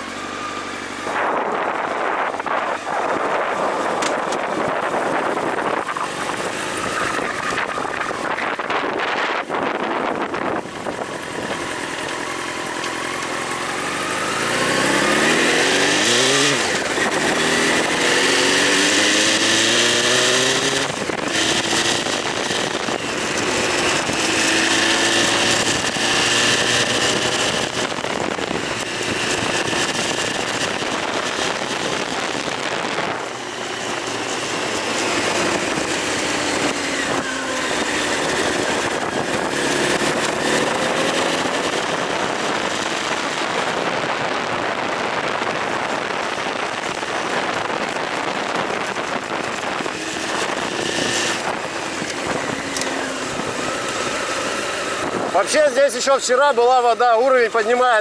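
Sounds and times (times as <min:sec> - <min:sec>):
motorcycle engine accelerating: 0:00.0 - 0:58.0
wind on microphone: 0:01.0 - 0:11.9, 0:14.3 - 0:55.9.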